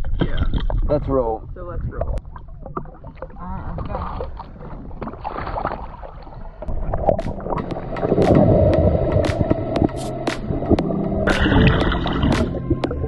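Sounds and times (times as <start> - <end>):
wind: 0.0 - 12.6
underwater bubbling: 0.0 - 13.0
water sloshing against hull: 0.0 - 13.0
sharp underwater clicks: 6.6 - 13.0.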